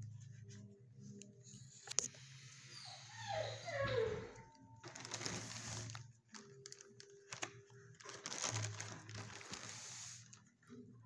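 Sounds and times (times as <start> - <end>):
clicks and rustles: 4.8 - 10.5.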